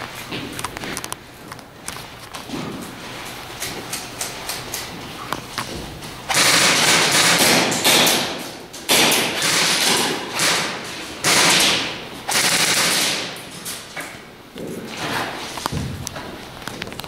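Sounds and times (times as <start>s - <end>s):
airsoft guns firing bursts: 6.3s - 13.4s.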